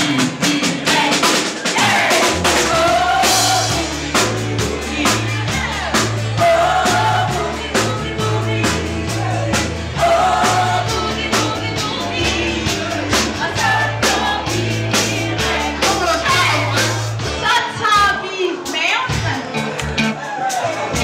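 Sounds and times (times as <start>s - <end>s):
live band playing boogie-woogie: 0.0s - 21.0s
steady drum beat: 0.0s - 21.0s
stepping bass line: 1.8s - 17.6s
person singing: 2.7s - 17.0s.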